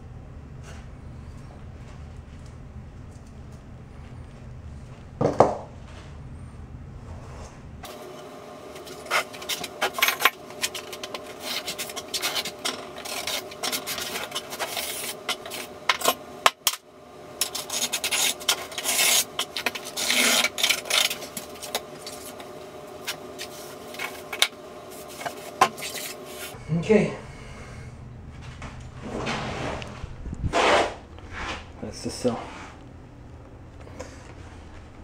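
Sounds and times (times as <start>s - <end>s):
scraping and rubbing: 8.8s - 26.6s, 28.4s - 31.7s, 32.3s - 32.8s.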